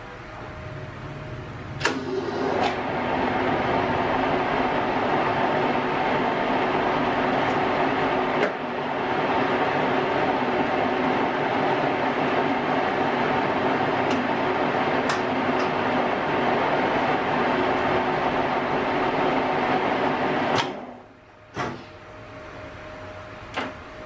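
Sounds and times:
lathe humming and whining: 0.0s - 20.9s
lathe switch clicks: 1.8s - 2.8s, 14.0s - 14.3s, 15.0s - 15.8s, 20.5s - 21.0s, 23.5s - 23.8s.

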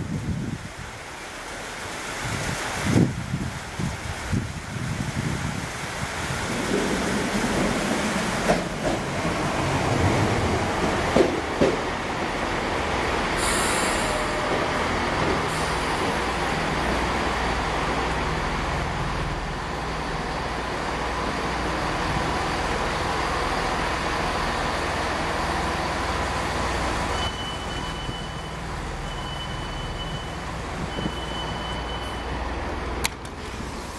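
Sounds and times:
wheel and rail noise: 3.6s - 33.9s
diesel train engines droning: 5.8s - 33.9s
short air hisses: 13.4s - 14.4s
short high beep: 13.5s - 14.7s, 27.2s - 32.4s.

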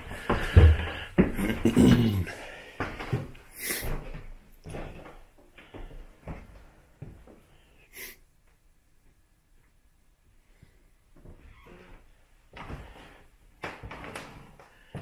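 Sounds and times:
footsteps on wooden floorboards: 0.0s - 2.0s, 2.8s - 7.4s.

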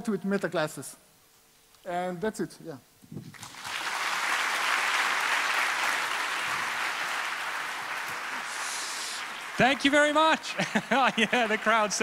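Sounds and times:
large audience applauding: 3.4s - 12.0s.

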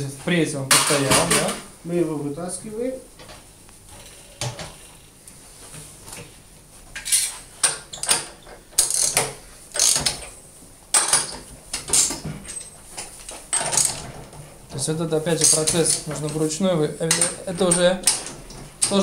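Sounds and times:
ratchet wrench clicking: 8.8s - 9.2s, 9.8s - 10.1s.

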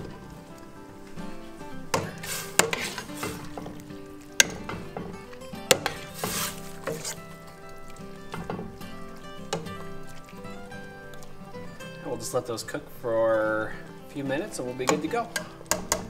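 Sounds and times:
soup liquid swishing: 0.0s - 15.7s
ladle clinking against pot: 1.9s - 3.8s, 4.4s - 5.1s, 14.8s - 16.0s.

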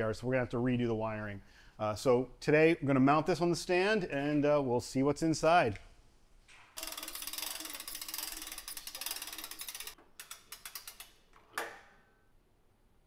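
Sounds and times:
hand-cranked winch ratcheting: 6.8s - 11.2s.

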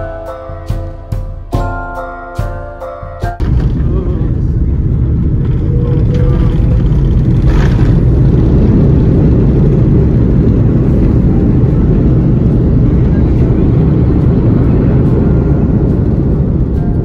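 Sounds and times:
airliner engines and wheels rumbling: 3.4s - 17.0s.

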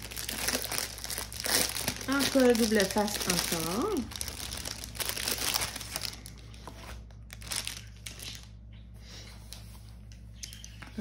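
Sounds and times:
canvas and plastic wrap crinkling: 0.0s - 8.6s.

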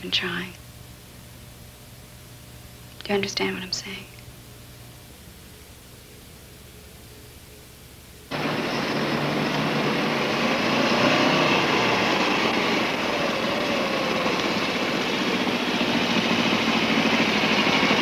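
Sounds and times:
vehicle engine running: 8.3s - 18.0s.

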